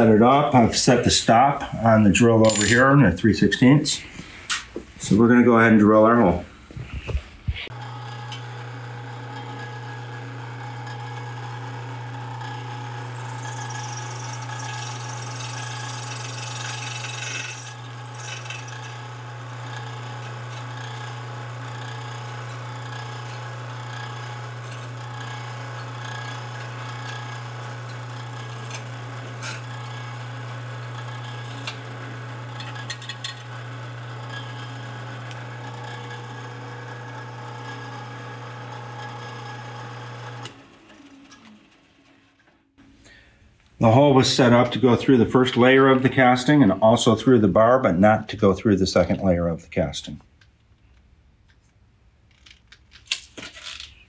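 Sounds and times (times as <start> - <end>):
drill press drilling metal: 7.7 - 41.7.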